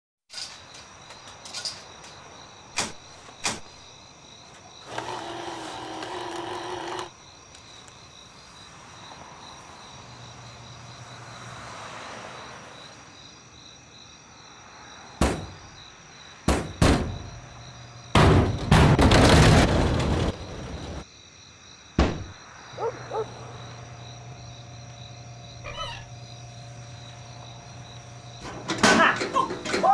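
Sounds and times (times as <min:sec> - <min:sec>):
crickets chirping: 0:00.3 - 0:29.9
vending machine motor whirring: 0:04.8 - 0:07.1, 0:23.8 - 0:28.8.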